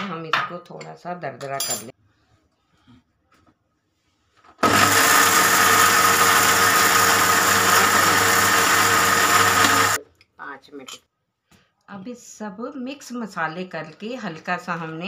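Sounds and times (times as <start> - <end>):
electric mixer grinder running: 4.6 - 10.0.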